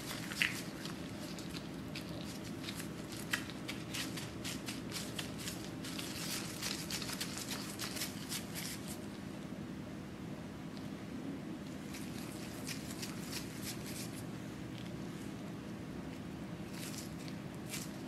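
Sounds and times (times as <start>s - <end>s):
disposable gloves rustling: 0.0s - 9.2s, 11.8s - 15.0s, 16.6s - 18.0s
faint low hum: 0.0s - 18.0s.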